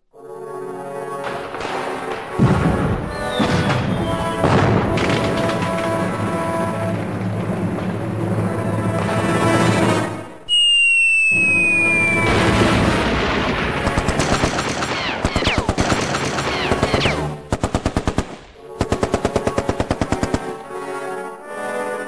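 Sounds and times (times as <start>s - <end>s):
dense battle noise: 0.9s - 10.4s, 11.5s - 21.3s
machine-gun fire: 1.1s - 10.0s, 12.2s - 20.7s
falling whistle: 10.5s - 12.8s.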